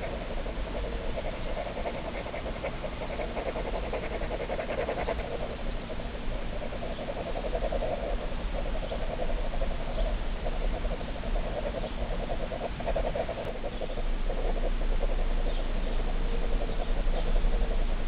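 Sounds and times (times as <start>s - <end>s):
pen scribbling on paper: 0.0s - 5.5s.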